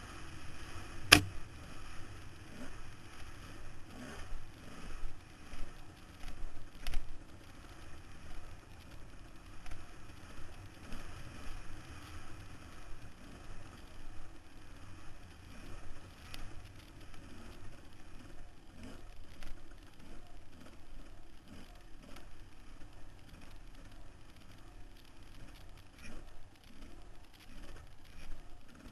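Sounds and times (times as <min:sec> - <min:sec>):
dirt bike engine: 0:01.1 - 0:01.6.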